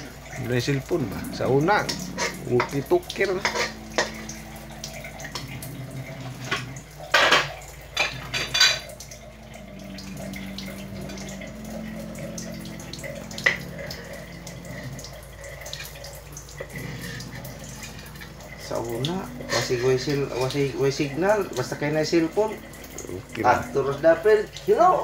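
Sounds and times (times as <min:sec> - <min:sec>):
metal kitchenware clanking and scraping: 0:01.1 - 0:09.0, 0:17.0 - 0:22.6.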